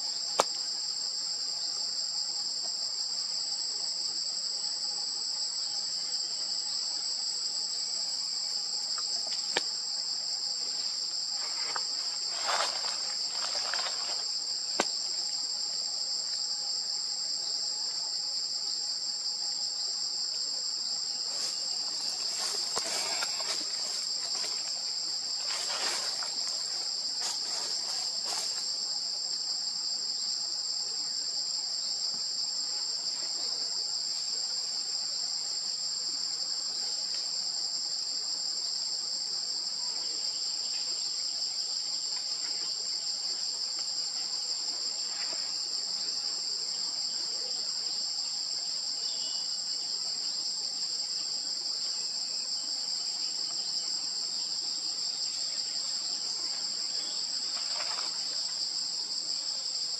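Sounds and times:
insects droning: 0.0 - 59.9.

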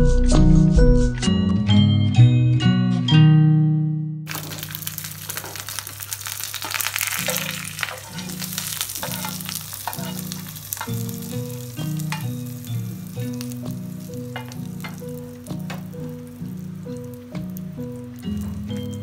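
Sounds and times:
background music: 0.0 - 4.6, 8.2 - 19.0
chillies sizzling in oil: 4.3 - 19.0
spatula stirring in pan: 4.3 - 19.0.

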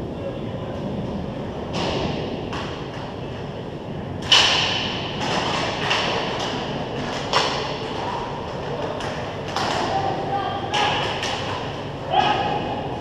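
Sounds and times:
hockey sticks clacking: 4.2 - 12.6.

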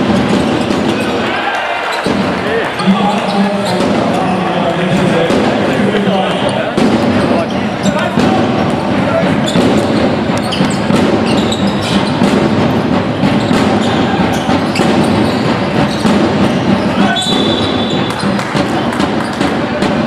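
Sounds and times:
basketball bouncing on court: 0.0 - 1.2, 2.0 - 4.4, 5.0 - 5.7, 6.6 - 20.0
high shoe squeak: 0.0 - 1.2, 1.8 - 4.4, 6.5 - 8.2, 9.1 - 19.6
noisy hall background: 0.0 - 20.0.

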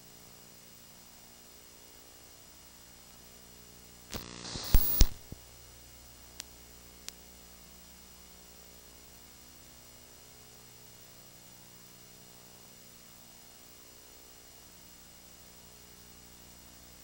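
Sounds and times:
steady electrical hum: 0.0 - 17.0
loud clicks: 4.1 - 5.4
static burst: 4.1 - 5.4
faint ticks: 6.3 - 7.3.

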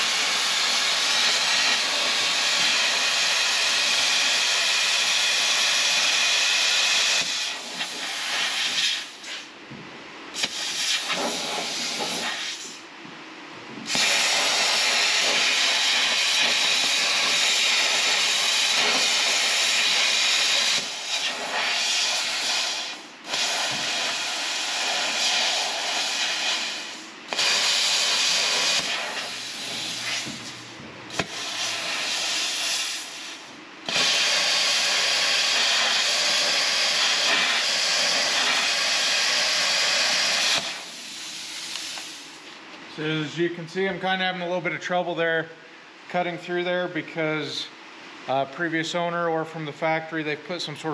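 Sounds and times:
plasma cutter hissing: 0.0 - 9.5, 10.3 - 12.8, 13.8 - 42.4.

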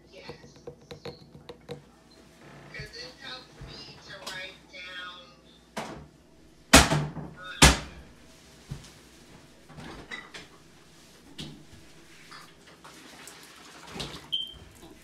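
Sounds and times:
household items knocking and clicking: 0.1 - 1.8.

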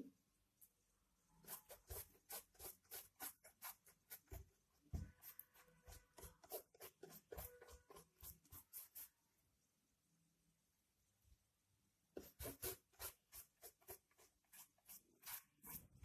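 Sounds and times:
paintbrush scratchy brushing: 0.6 - 9.4, 12.2 - 16.0.

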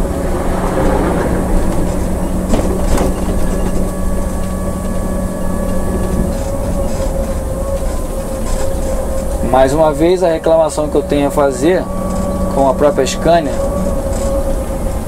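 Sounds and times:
diesel engine low rumble: 0.0 - 15.0
drivetrain whine: 0.0 - 15.0.

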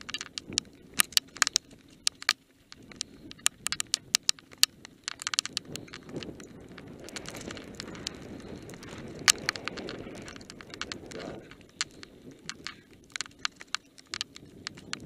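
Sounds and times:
bike clacking and rattling: 0.0 - 15.0
bike tyres rumbling on gravel: 0.0 - 15.0.

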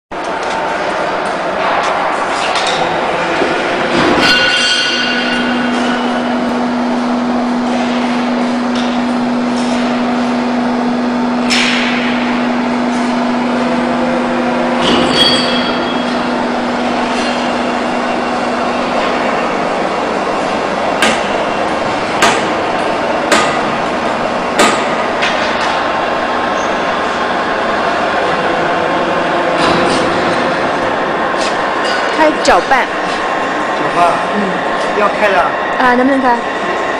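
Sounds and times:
machinery noise: 0.1 - 36.9
sharp metallic clanks: 3.9 - 6.2, 14.8 - 16.2.

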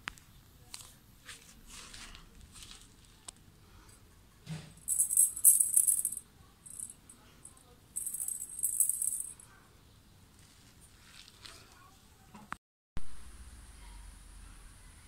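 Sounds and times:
plastic ball toy rattling: 4.8 - 7.0, 8.0 - 9.4.

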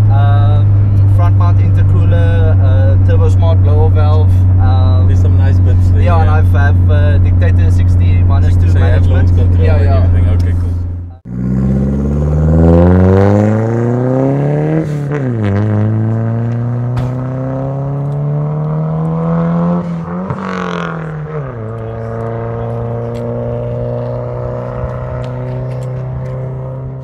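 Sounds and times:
car accelerating hard: 0.0 - 27.0.

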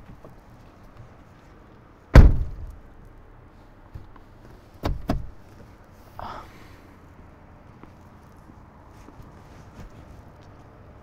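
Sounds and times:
car door shutting: 2.1 - 2.8, 4.8 - 5.4
quick thuds: 2.2 - 2.9
soft rustle: 2.7 - 11.0.

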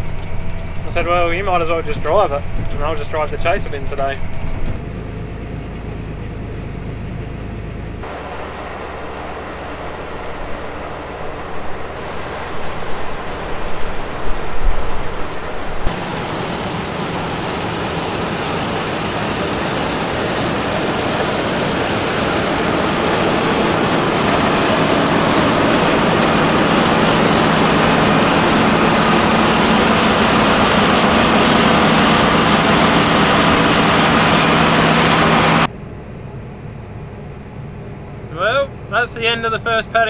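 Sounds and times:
combine harvester running: 0.0 - 40.0.

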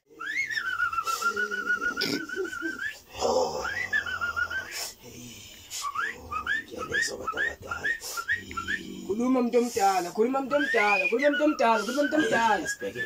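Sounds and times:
person whistling: 0.2 - 3.0, 3.6 - 5.0, 5.8 - 8.9, 10.5 - 13.0.

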